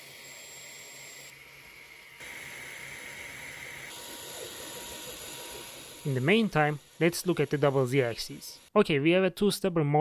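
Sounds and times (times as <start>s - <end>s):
printer fan hiss: 0.0s - 8.7s
faint high whine: 0.0s - 8.8s.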